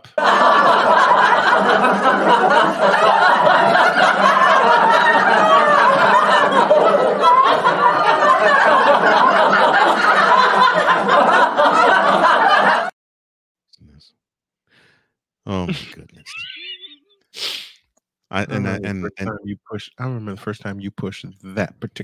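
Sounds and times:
group of people laughing: 0.0 - 12.9, 15.5 - 17.1, 18.4 - 19.9.

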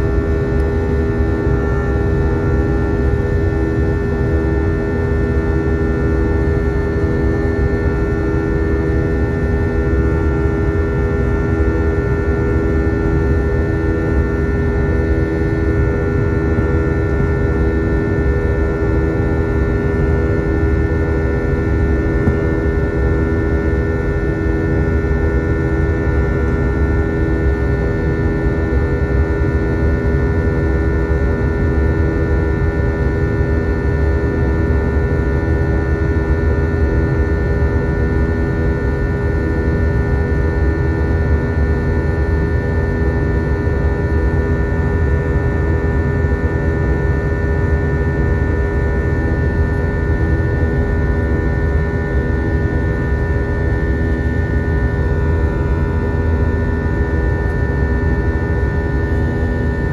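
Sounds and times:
steady humming tones: 0.0 - 26.8
airplane cabin drone: 0.0 - 59.9.

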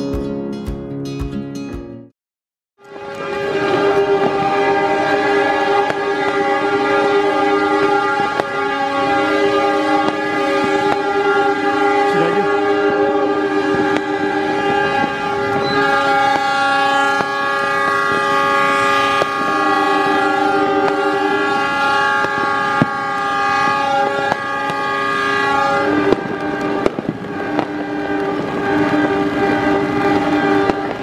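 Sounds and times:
locomotive air horns: 2.8 - 31.0.

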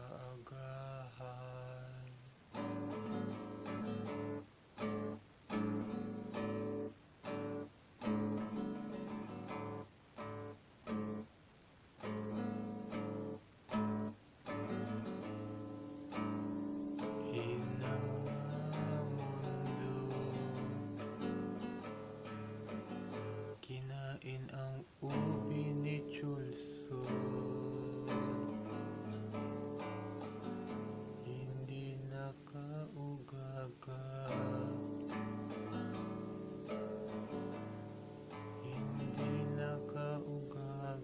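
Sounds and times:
guitar strumming chords: 1.3 - 11.3, 12.0 - 41.0.

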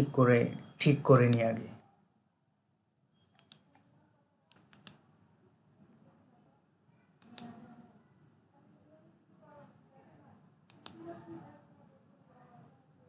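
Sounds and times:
computer mouse and keyboard clicks: 3.3 - 3.8, 4.5 - 5.0, 7.2 - 7.6, 10.7 - 11.2.

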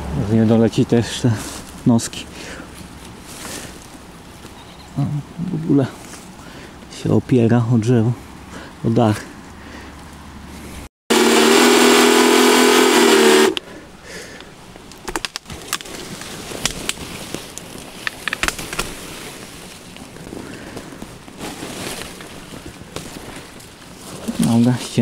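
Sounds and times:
leaves rustling: 0.0 - 10.9, 13.0 - 25.0
power saw cutting: 11.1 - 13.6
branches cracking and snapping: 14.4 - 24.8.

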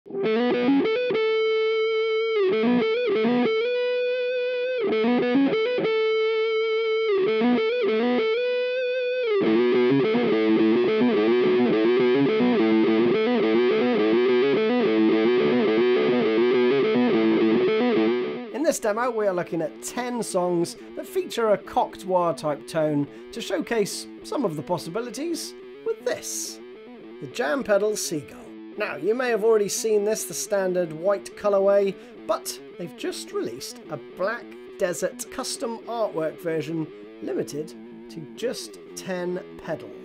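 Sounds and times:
distorted electric guitar riff: 0.1 - 40.0.

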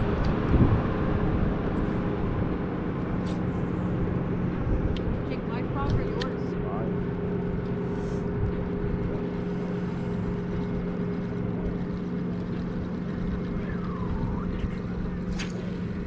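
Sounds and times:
boat motor humming: 0.0 - 16.0.

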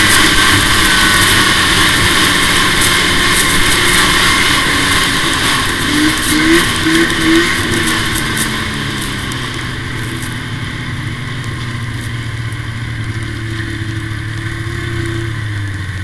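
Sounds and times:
snowmobile engine running: 0.0 - 16.0.

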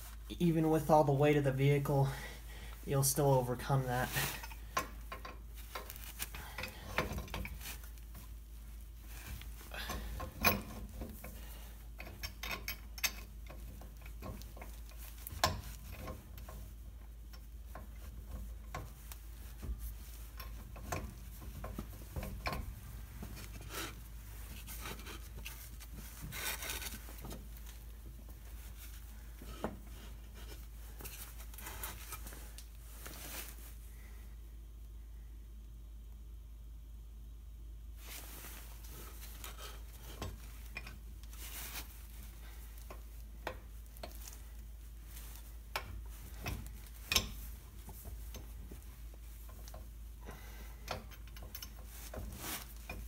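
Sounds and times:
pipe wrench clinking on metal: 9.8 - 11.4, 12.0 - 16.7, 45.7 - 47.5, 49.6 - 53.0.

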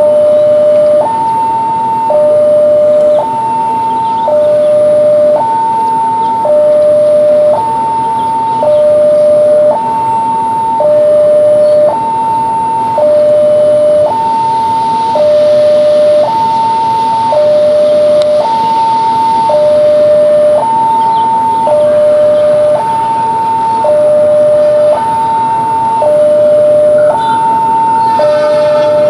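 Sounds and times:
level crossing two-tone alarm: 0.0 - 29.0.

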